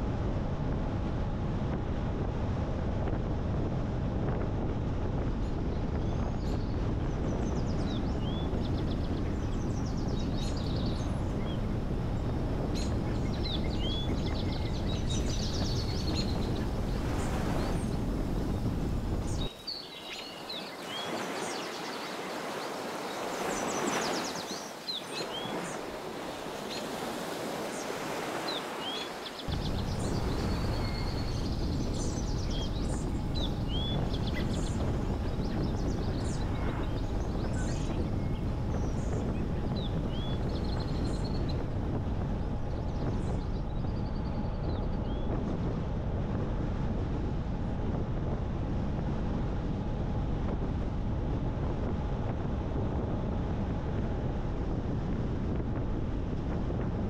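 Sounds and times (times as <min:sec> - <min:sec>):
birds chirping: 0:12.3 - 0:41.6
steady low rumble: 0:29.5 - 0:57.0.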